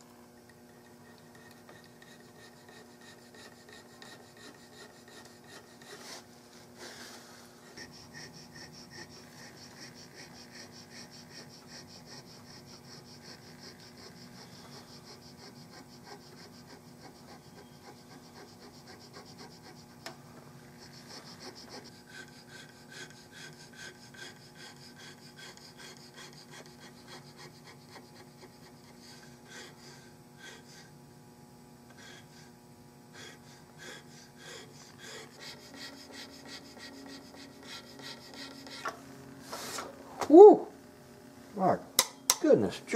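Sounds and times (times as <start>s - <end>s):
faint steady hum: 0.0s - 42.9s
hand tool scraping wood: 0.9s - 19.8s, 33.2s - 39.9s.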